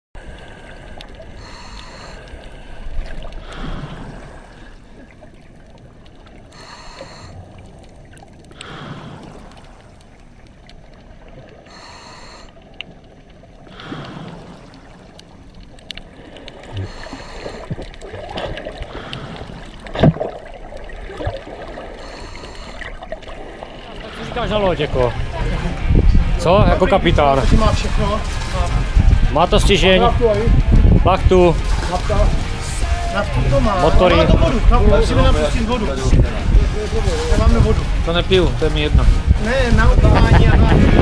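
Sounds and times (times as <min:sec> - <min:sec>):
diver hissing in-breath: 0:00.4 - 0:04.8, 0:06.5 - 0:07.5, 0:08.6 - 0:09.6, 0:11.7 - 0:12.6, 0:16.6 - 0:17.7, 0:21.9 - 0:23.0.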